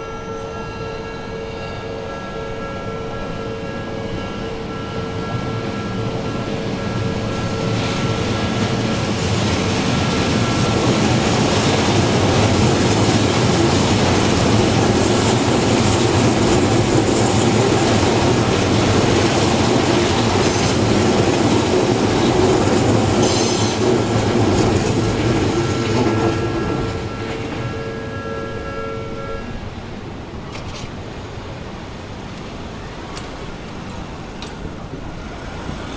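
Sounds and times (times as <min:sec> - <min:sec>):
two-tone crossing bell ringing: 0:00.0 - 0:13.5
train wheels rumbling on rails: 0:00.0 - 0:28.7, 0:29.3 - 0:35.9
road traffic: 0:00.0 - 0:35.9.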